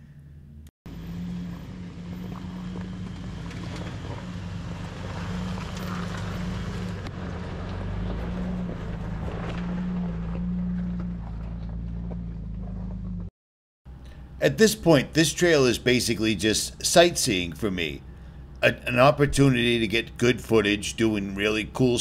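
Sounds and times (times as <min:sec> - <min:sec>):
truck engine running: 0:00.0 - 0:13.3, 0:13.9 - 0:22.0
tyre and road noise: 0:00.9 - 0:13.3.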